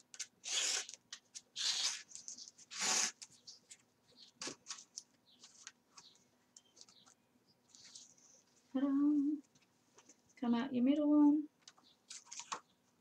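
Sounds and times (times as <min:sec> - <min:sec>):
thread zipping through paper: 0:00.4 - 0:01.0, 0:01.6 - 0:03.3
paper rustling and tapping: 0:11.6 - 0:12.7.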